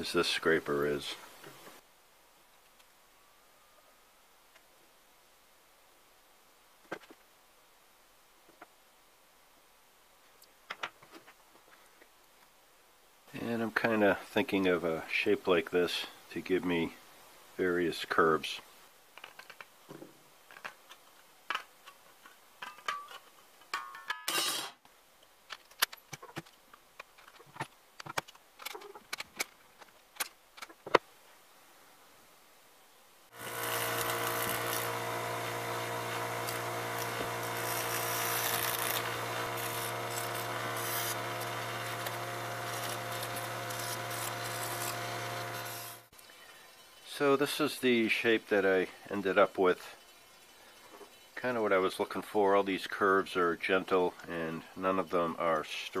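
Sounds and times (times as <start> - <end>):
bench grinder grinding steel: 33.3 - 47.2
tin snips cutting steel: 33.4 - 46.0.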